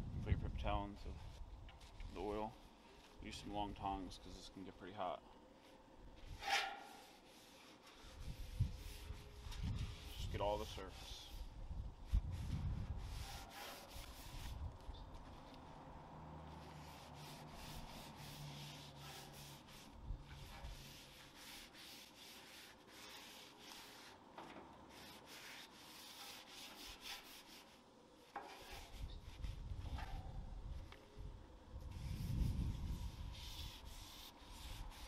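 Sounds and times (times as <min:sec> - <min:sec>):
paper towel wiping hot griddle: 0:12.3 - 0:14.6, 0:16.6 - 0:24.2, 0:24.9 - 0:27.8, 0:28.4 - 0:29.6.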